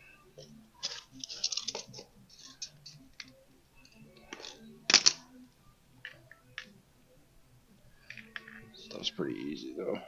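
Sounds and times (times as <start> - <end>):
plastic tubing clicks and rustles: 0.8 - 3.4.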